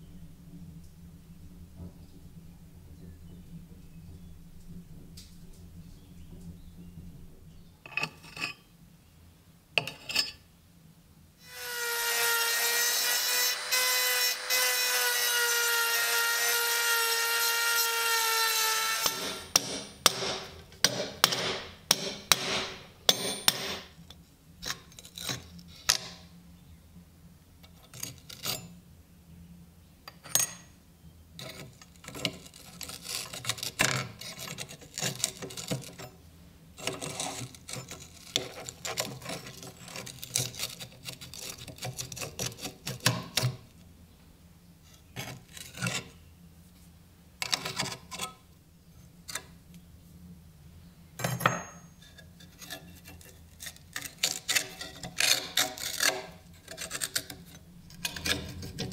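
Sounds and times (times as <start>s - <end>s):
rotary tool grinding metal: 11.4s - 20.2s, 36.8s - 43.5s, 52.5s - 58.9s
metal clicks and scrapes: 36.8s - 43.6s, 52.0s - 58.9s.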